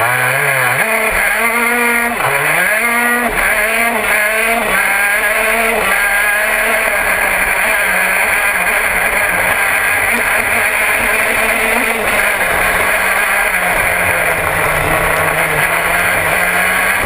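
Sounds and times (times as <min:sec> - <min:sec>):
kart engine at high revs: 0:00.0 - 0:17.0.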